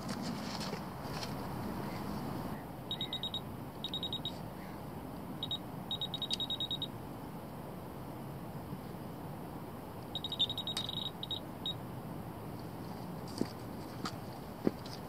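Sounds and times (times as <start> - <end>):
bite alarms beeping: 2.9 - 4.4, 5.4 - 7.0, 10.1 - 11.8.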